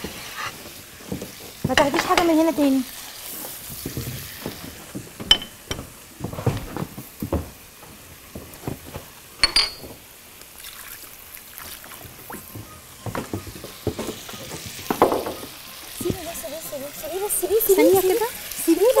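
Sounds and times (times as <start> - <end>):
spatulas knocking in frying pans: 1.6 - 2.6, 4.5 - 6.0, 13.1 - 16.5
ringing clinks of utensils: 5.3 - 5.8, 9.4 - 10.0.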